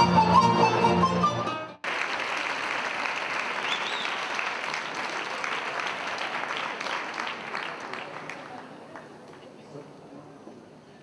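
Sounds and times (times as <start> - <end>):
audience applauding: 1.8 - 9.5.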